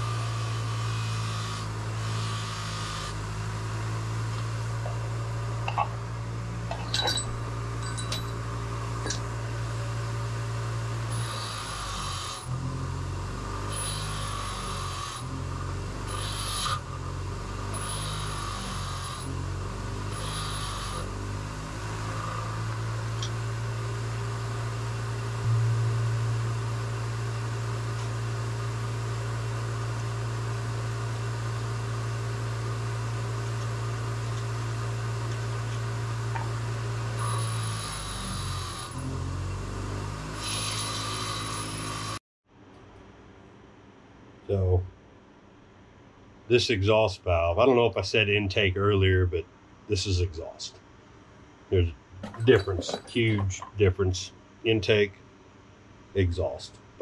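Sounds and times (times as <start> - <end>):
power tool whirring: 0.0 - 42.2
low machine hum: 0.0 - 57.0.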